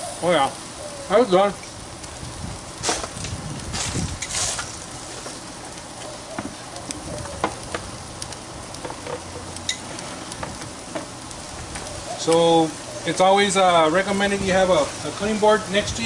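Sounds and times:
chicken sizzling on grill: 0:00.0 - 0:16.0
pops and crackles: 0:01.6 - 0:12.5.

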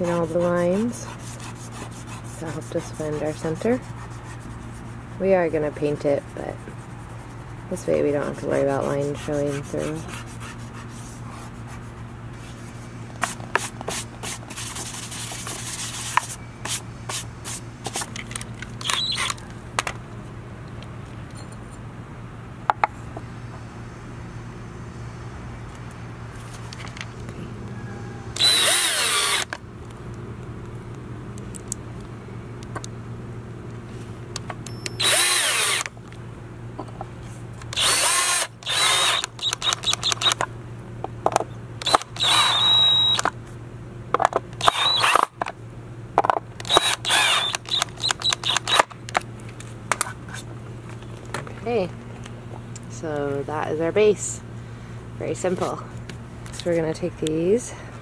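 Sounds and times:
rubbing and handling on wood: 0:00.0 - 0:18.3
steady low hum: 0:00.0 - 0:58.0
cordless drill driving screws: 0:28.4 - 0:29.6, 0:35.0 - 0:35.9, 0:37.7 - 0:40.4, 0:41.8 - 0:43.2, 0:44.6 - 0:45.3, 0:46.6 - 0:48.9.

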